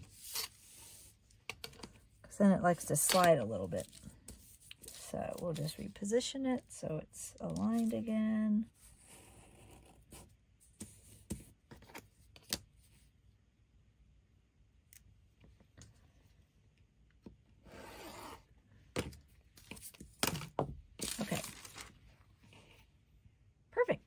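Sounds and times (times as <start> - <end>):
paper rustling: 21.0 - 22.0.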